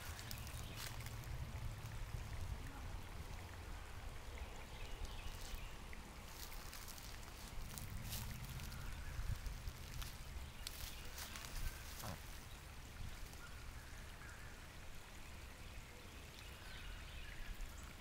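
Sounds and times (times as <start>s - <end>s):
steady low rumble: 0.2s - 4.2s, 5.8s - 13.4s.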